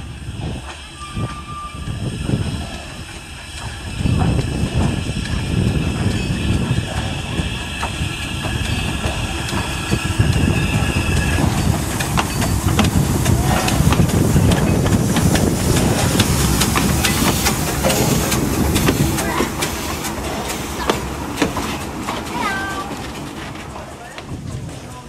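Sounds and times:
steam train hissing: 0.0 - 25.0
train rumbling: 0.0 - 25.0
wheels clicking over rails: 2.0 - 25.0.

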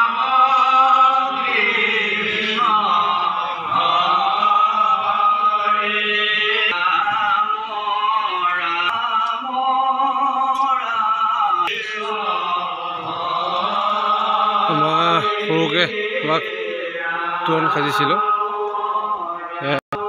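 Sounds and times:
men chanting: 0.0 - 20.0.

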